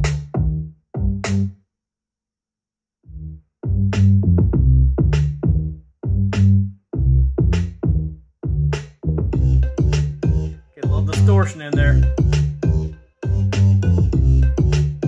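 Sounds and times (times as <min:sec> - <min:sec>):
electronic music with heavy beat: 0:09.3 - 0:15.0.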